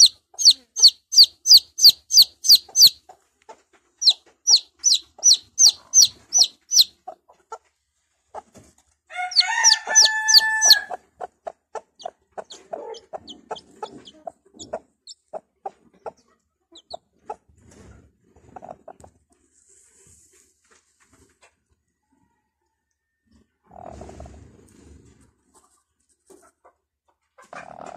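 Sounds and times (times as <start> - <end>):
chick peeping: 0.0 - 7.7, 9.3 - 19.1
hen clucking: 0.0 - 7.7, 8.3 - 19.2, 26.4 - 27.9.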